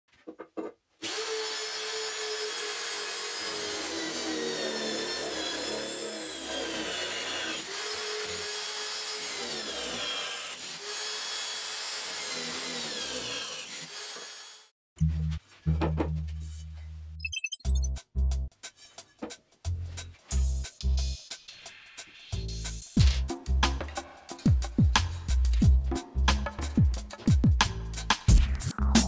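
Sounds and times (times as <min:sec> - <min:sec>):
drill bit grinding metal: 0:01.0 - 0:14.6.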